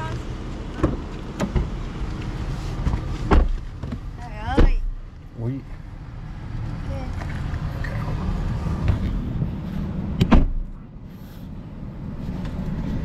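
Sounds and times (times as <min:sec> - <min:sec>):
steady low rumble: 0:00.0 - 0:13.0
car door shutting thump: 0:02.8 - 0:05.0, 0:10.2 - 0:10.8.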